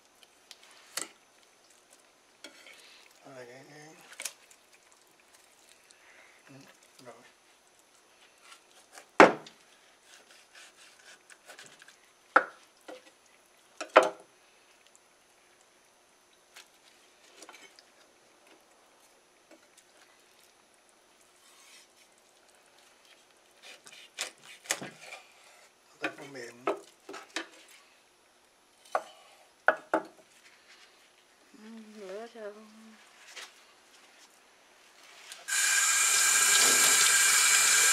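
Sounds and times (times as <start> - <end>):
knife sawing through fish: 9.8 - 11.6
knife cutting fish on board: 23.6 - 25.2.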